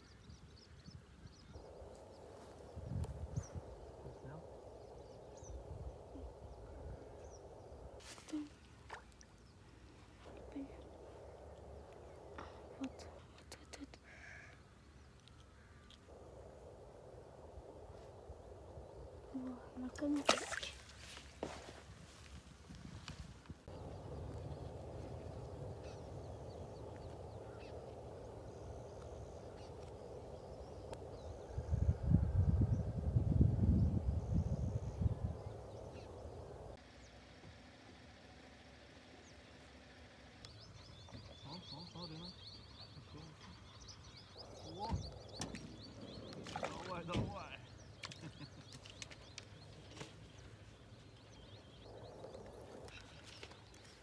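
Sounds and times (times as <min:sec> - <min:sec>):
small birds chirping: 0:00.0 - 0:37.2, 0:39.1 - 0:54.0
low background rumble: 0:23.6 - 0:48.0.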